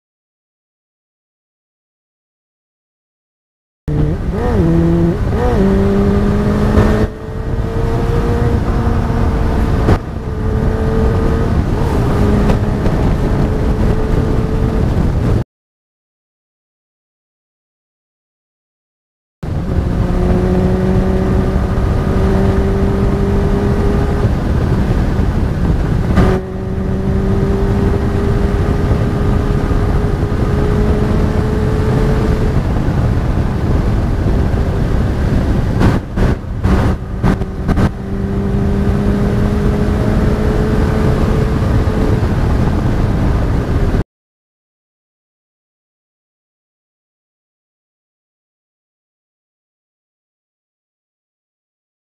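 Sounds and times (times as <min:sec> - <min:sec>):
motorcycle engine cruising: 0:03.9 - 0:15.4, 0:19.5 - 0:44.0
wind rumble on microphone: 0:03.9 - 0:15.4, 0:19.4 - 0:44.0.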